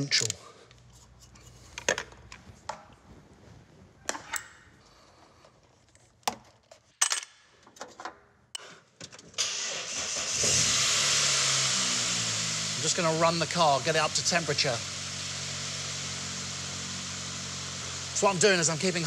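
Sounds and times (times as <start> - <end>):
tools clinking: 5.9 - 8.7
car engine starting and running: 9.4 - 19.0.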